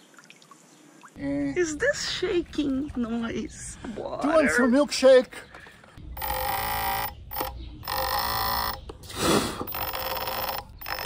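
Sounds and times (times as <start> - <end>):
electric motor buzzing: 6.2 - 8.9, 9.6 - 11.0.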